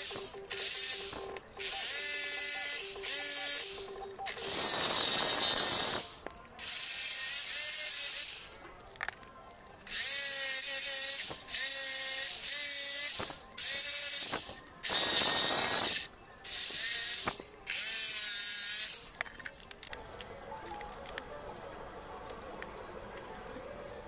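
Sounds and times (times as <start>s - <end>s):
jigsaw cutting wood: 4.4s - 6.0s, 13.9s - 16.0s.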